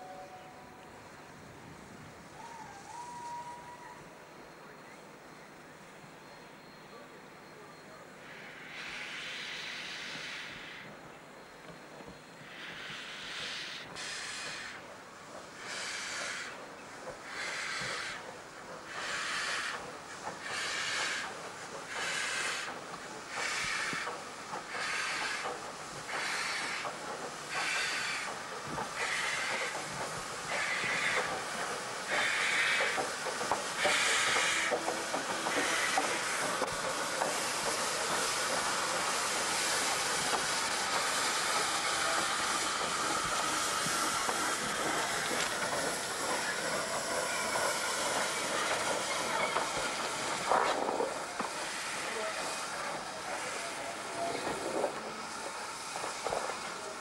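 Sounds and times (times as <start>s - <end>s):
loud hiss of steam: 1.0s - 5.1s, 6.9s - 57.0s
steam locomotive exhaust beats: 8.2s - 57.0s.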